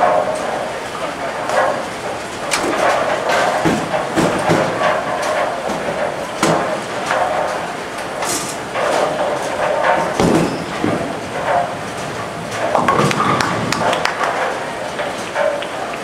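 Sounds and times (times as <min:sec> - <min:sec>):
bowling balls and pins clattering: 0:00.0 - 0:16.0
sharp knocks: 0:09.8 - 0:11.6.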